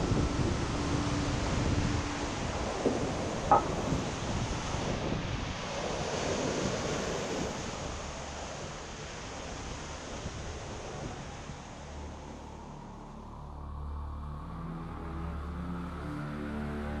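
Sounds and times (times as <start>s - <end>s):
waves breaking on pebbly shore: 0.0s - 12.2s
wind on microphone: 0.0s - 12.9s.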